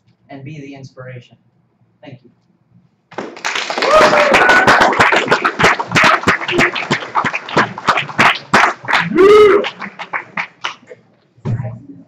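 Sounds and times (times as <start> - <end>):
audience clapping: 3.1 - 11.0
crowd whoop: 3.8 - 5.0, 9.0 - 9.8.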